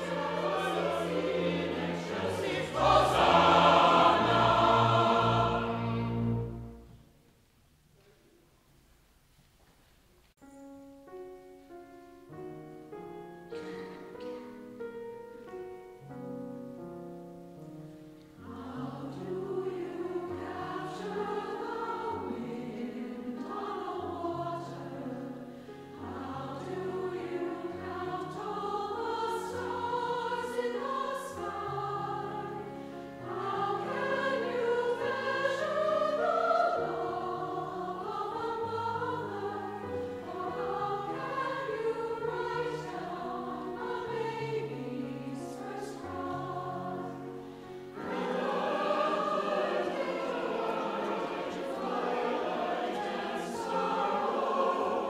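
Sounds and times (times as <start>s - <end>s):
choir singing: 0.0s - 7.1s, 18.3s - 55.0s
piano accompaniment: 0.0s - 7.1s, 10.4s - 55.0s.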